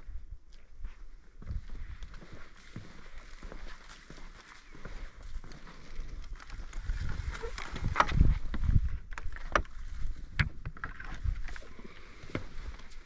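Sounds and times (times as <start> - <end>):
rustle of movement: 2.0 - 13.0
wind on microphone: 6.6 - 11.6.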